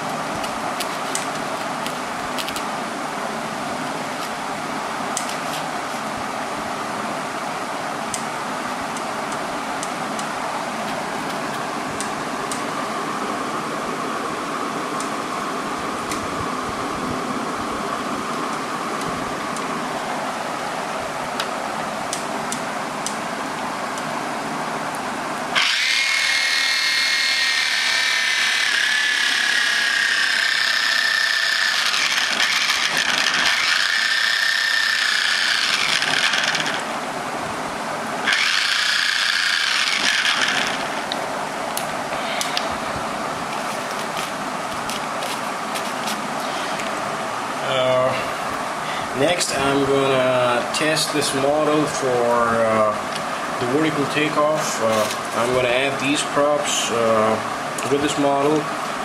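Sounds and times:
steady background hum: 0:00.0 - 0:59.0
small electric motor whining: 0:25.5 - 0:36.9, 0:38.2 - 0:41.1.

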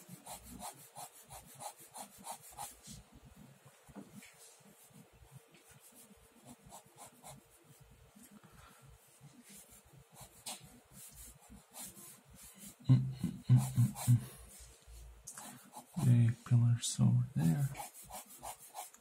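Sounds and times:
pen scratching on paper: 0:00.0 - 0:03.0, 0:05.8 - 0:07.8, 0:09.2 - 0:12.8, 0:13.6 - 0:14.1, 0:15.5 - 0:16.2, 0:17.6 - 0:19.0
low voice: 0:12.9 - 0:14.3, 0:16.0 - 0:17.8.

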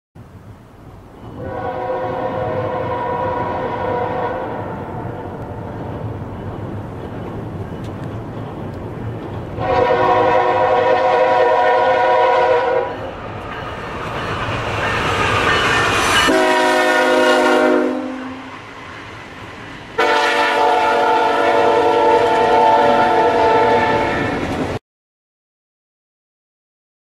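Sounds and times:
train rumble: 0:00.2 - 0:24.8
train air horn blasts: 0:01.4 - 0:05.9, 0:09.6 - 0:13.0, 0:16.2 - 0:18.6, 0:20.0 - 0:24.5.

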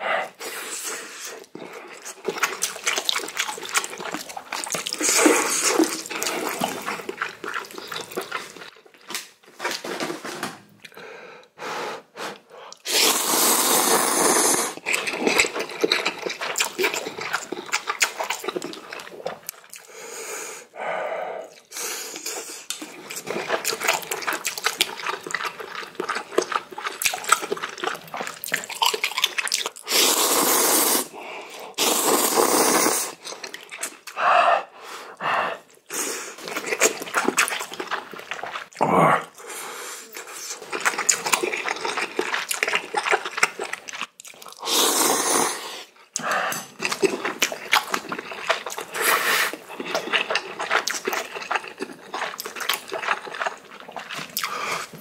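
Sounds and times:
noodles being slurped: 0:00.3 - 0:10.2, 0:12.2 - 0:20.0, 0:21.5 - 0:34.2, 0:35.0 - 0:55.0
wet chewing and smacking: 0:01.2 - 0:10.0, 0:14.8 - 0:20.0, 0:21.5 - 0:30.0, 0:33.1 - 0:34.2, 0:35.7 - 0:44.7, 0:46.1 - 0:55.0.

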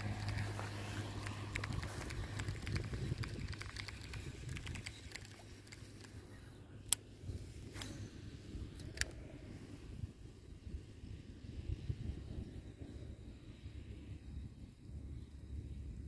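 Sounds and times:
wind rumble on microphone: 0:00.0 - 0:05.8, 0:06.6 - 0:16.0
fishing reel clicking and rustling: 0:00.0 - 0:06.4, 0:07.6 - 0:09.3.

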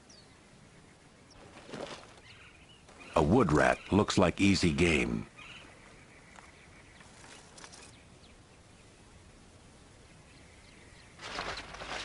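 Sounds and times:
low steady hiss: 0:00.0 - 0:12.0
soft ticks and rustles: 0:05.6 - 0:08.0.

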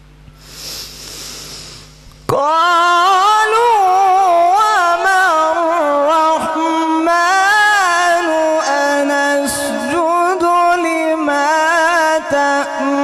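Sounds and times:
man reciting melodically into microphone: 0:02.3 - 0:13.0.

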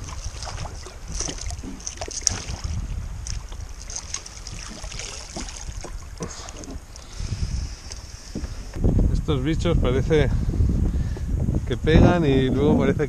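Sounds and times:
small splashes: 0:00.0 - 0:07.1
water around a kayak: 0:00.0 - 0:13.0
wind buffeting microphone: 0:00.0 - 0:13.0.

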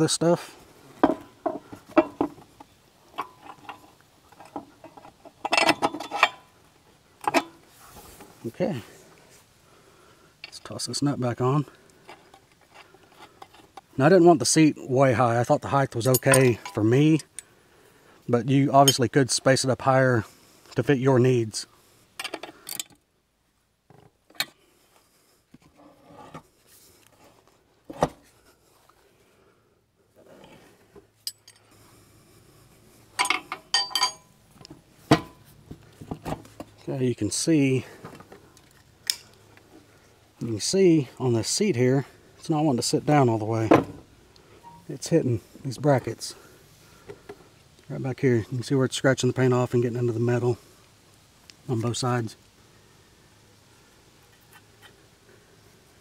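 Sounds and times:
bolt and washers clicking on metal: 0:33.2 - 0:34.2.

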